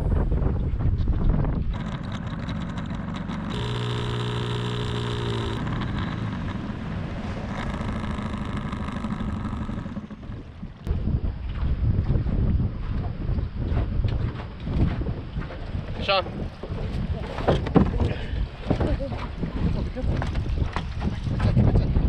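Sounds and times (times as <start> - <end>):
wind noise on microphone: 0.0 - 22.0
boat motor humming: 1.4 - 11.5.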